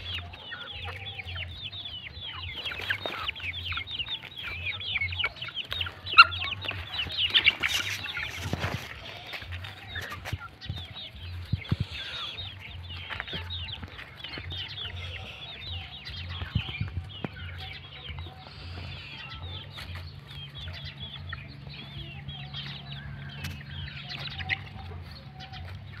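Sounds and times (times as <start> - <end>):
chicks peeping and clucking: 0.0 - 26.0.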